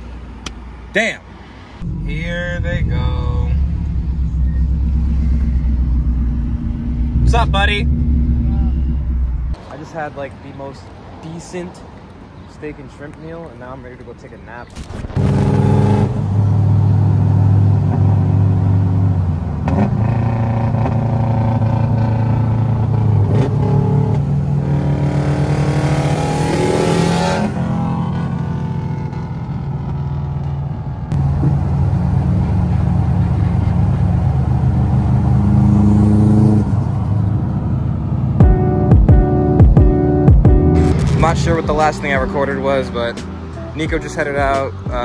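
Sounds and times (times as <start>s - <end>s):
car engine drone: 1.5s - 9.6s, 14.7s - 45.0s
car accelerating past: 34.3s - 38.4s.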